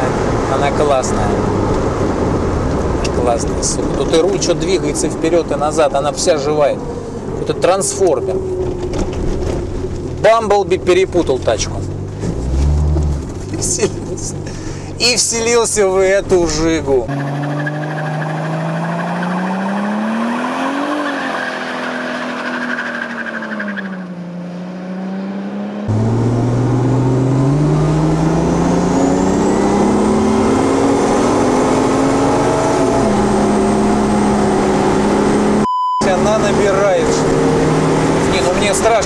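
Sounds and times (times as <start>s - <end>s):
car engine revving hard: 11.8s - 14.7s, 17.1s - 23.5s, 24.2s - 39.0s.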